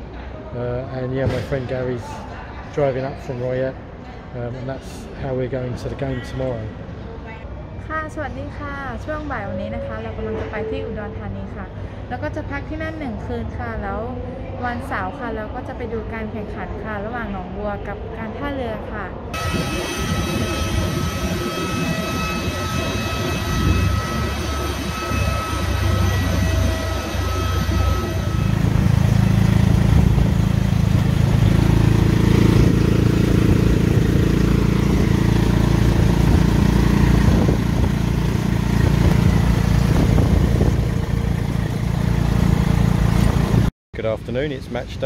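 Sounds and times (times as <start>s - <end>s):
jet engines whining: 19.4s - 43.7s
motorcycle engine rumble: 19.4s - 43.7s.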